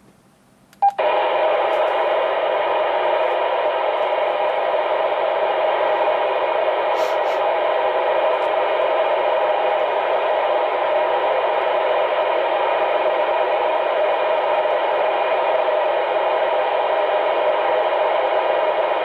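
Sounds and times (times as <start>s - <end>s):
radio receiver hiss: 0.8s - 19.0s.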